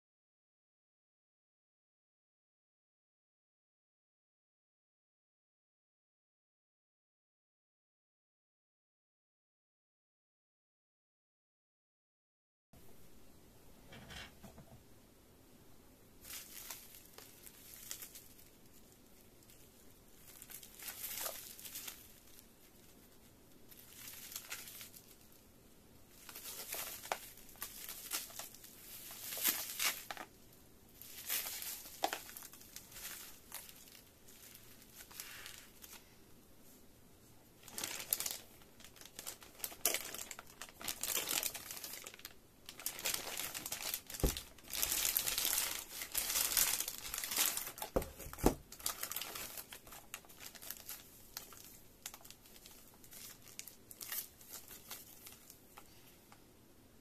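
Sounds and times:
bubble wrap crinkling: 16.2 - 36.2, 37.3 - 56.2.

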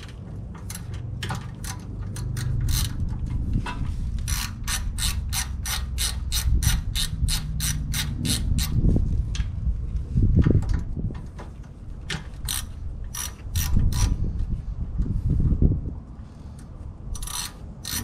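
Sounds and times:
socket ratchet clicking: 0.6 - 3.1, 4.2 - 8.8, 12.4 - 14.2, 17.1 - 18.0.

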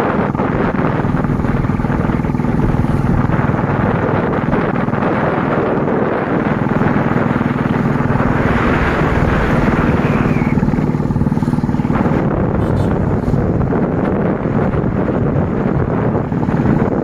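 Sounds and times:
motorcycle engine cruising: 0.0 - 17.0.

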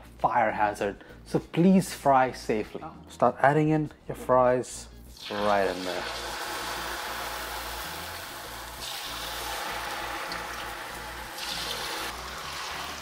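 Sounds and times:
oil sizzling and bubbling: 5.1 - 13.0.

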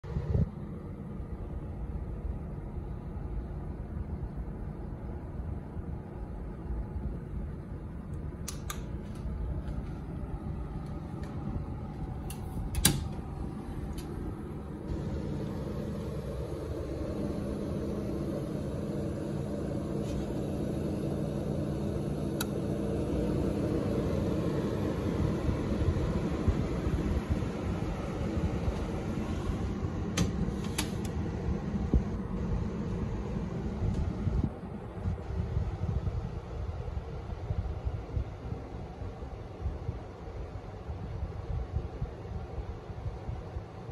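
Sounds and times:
air conditioner humming: 0.0 - 43.9
fan rushing: 0.0 - 43.9
sharp clicks: 8.1 - 9.3.

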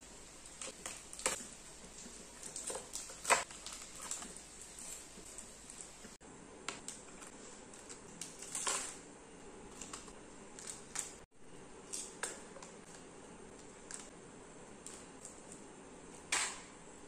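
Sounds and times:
plastic wrappers crinkling: 0.4 - 6.1, 6.8 - 9.0, 9.7 - 11.3.

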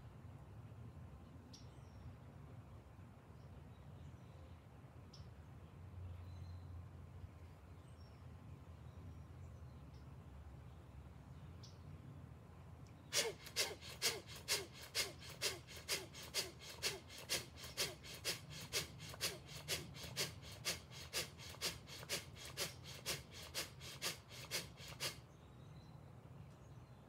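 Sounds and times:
rapid breathing through nose: 13.1 - 25.2.

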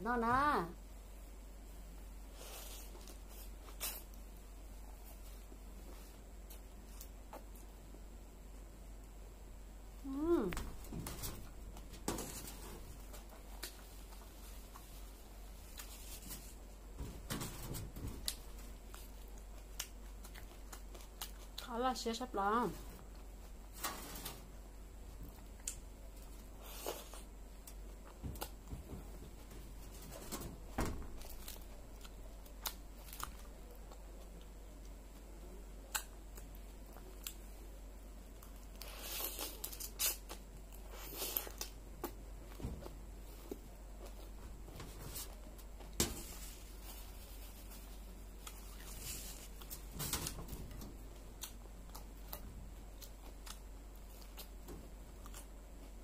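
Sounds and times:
lettuce and cabbage crunching: 38.3 - 42.2.

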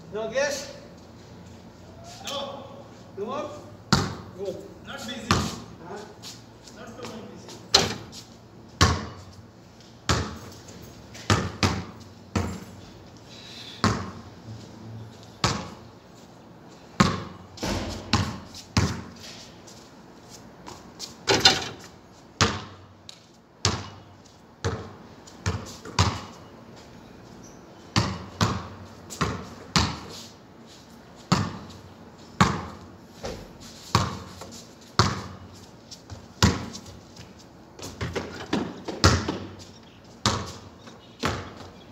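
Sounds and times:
basketball bouncing on concrete: 3.9 - 4.3, 5.3 - 5.6, 8.8 - 9.3, 10.1 - 10.5, 11.1 - 12.7, 13.8 - 14.2, 15.4 - 15.8, 17.0 - 19.2, 22.4 - 22.8, 23.6 - 26.4, 28.0 - 30.1, 31.3 - 31.8, 32.4 - 34.4, 35.0 - 35.5, 36.1 - 41.8.

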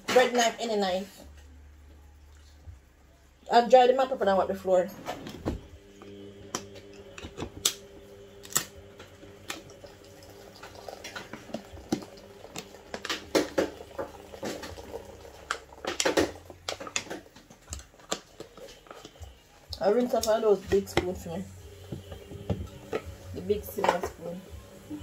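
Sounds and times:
steady low hum: 5.1 - 17.0, 17.7 - 25.0.

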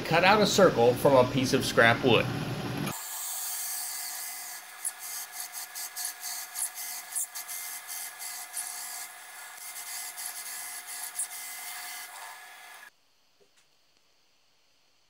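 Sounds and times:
drill press hum: 0.0 - 12.9
hole saw cutting wood: 2.9 - 12.9.

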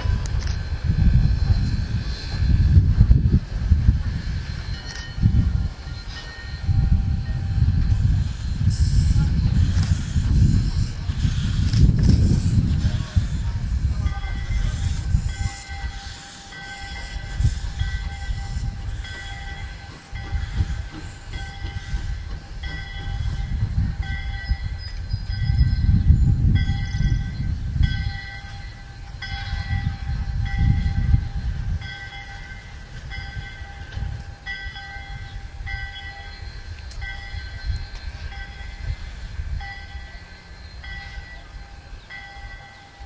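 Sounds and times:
train rolling on track: 0.0 - 43.0
bell ringing: 26.6 - 43.0.

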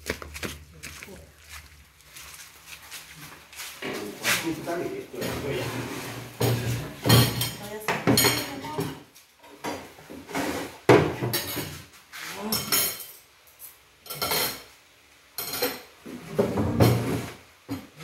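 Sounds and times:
plates and cutlery clinking: 5.1 - 11.8, 12.4 - 14.7, 15.4 - 18.0.

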